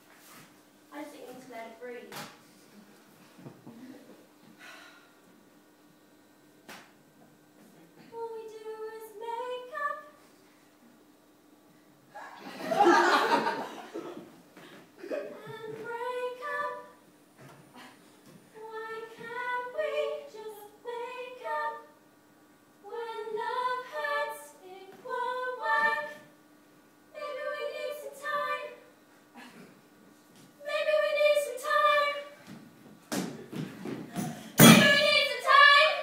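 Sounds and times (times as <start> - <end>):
woman singing: 34.7 - 36.0.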